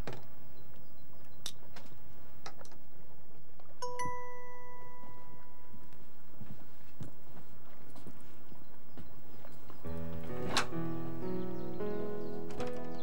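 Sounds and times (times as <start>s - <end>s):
bell-like chime ringing: 3.8s - 5.8s.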